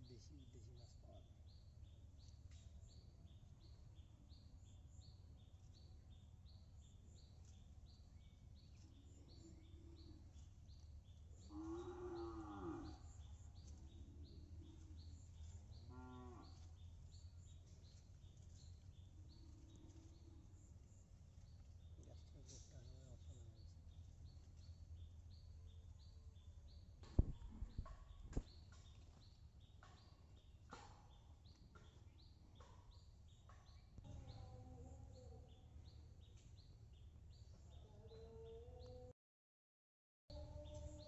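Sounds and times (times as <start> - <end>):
cow mooing: 11.4 - 13.0, 15.9 - 16.6.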